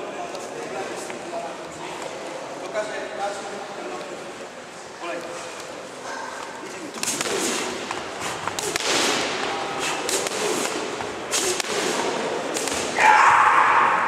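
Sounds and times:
boxing gloves slapping pads: 7.0 - 13.0.

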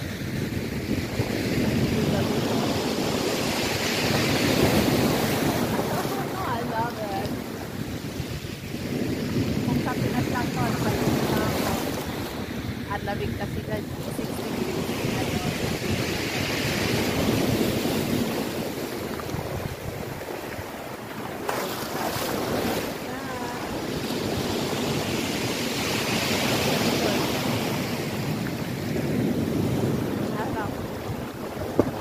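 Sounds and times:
wind on microphone: 0.0 - 32.0
waves breaking on shingle: 16.0 - 28.1, 29.8 - 32.0.

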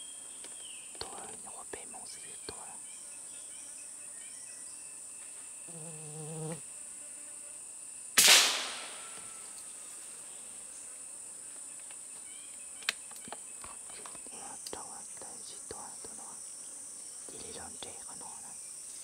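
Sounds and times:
insects buzzing: 0.0 - 19.0
gunshot: 8.2 - 9.4
small click: 11.8 - 13.4.

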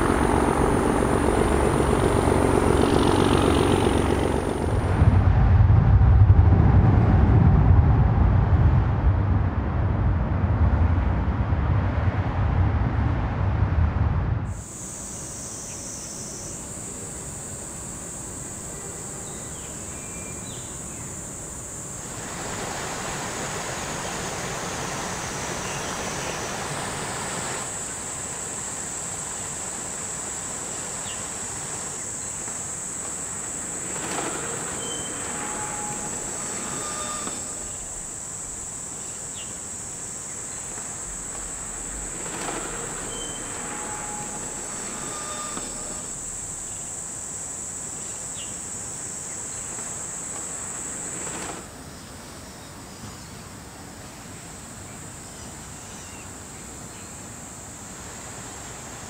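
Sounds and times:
high-pitched insect drone: 0.0 - 5.1, 14.5 - 52.7
broad rushing noise: 0.0 - 51.9.

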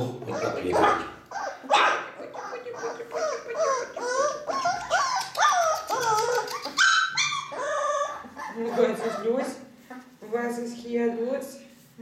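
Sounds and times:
puppies whimpering: 0.2 - 9.6.

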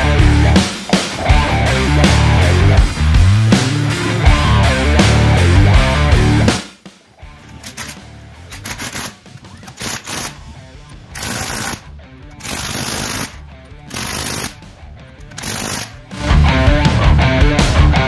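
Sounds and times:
rock music: 0.0 - 18.0
impact wrench bursts: 11.1 - 11.8, 12.4 - 14.6, 15.2 - 16.0.

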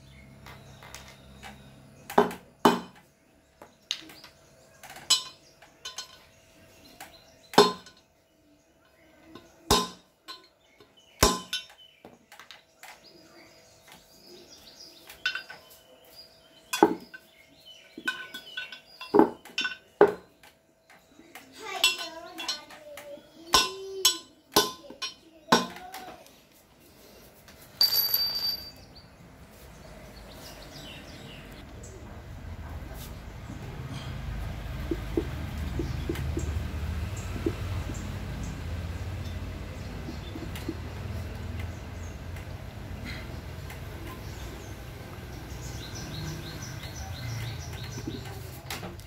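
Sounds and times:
hammer tapping on metal: 9.4 - 10.5
small bird chirping: 33.1 - 48.6.

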